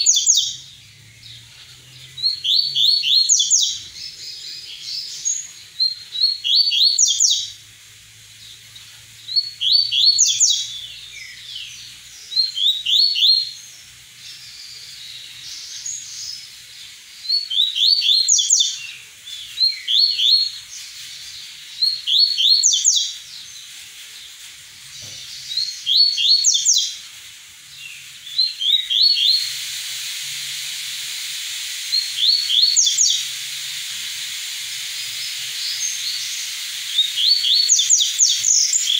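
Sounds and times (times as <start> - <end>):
bird singing: 0.0 - 38.9
steady hiss: 0.0 - 38.9.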